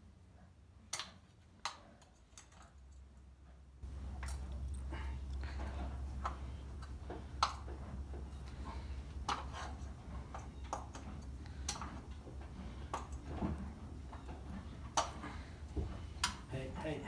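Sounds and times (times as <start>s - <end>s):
low steady hum: 0.0s - 17.0s
hand tool scraping hoof: 4.1s - 17.0s.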